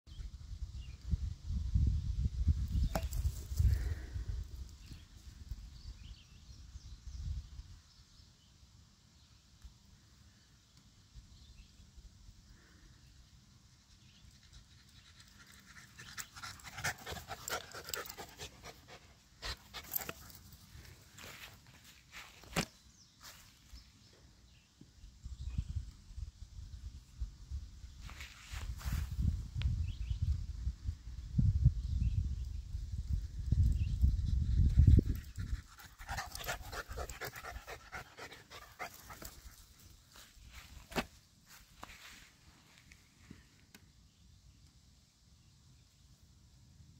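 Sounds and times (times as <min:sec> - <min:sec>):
dog panting: 0:16.3 - 0:20.1, 0:35.4 - 0:39.4.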